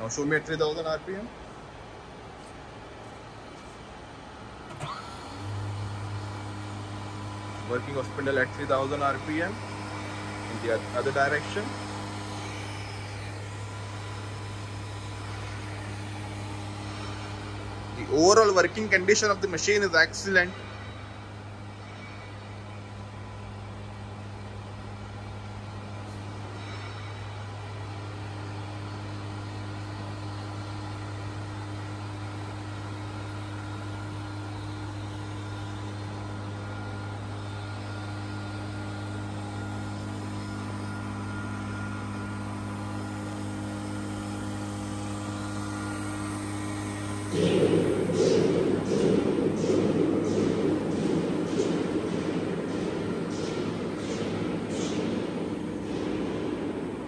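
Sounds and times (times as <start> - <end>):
grinder motor humming: 5.2 - 20.4
loud rushing noise: 47.2 - 57.0.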